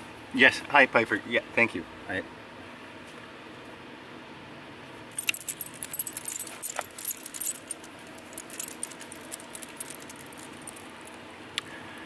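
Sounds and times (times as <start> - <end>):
metal chain collar jingling: 5.1 - 11.2.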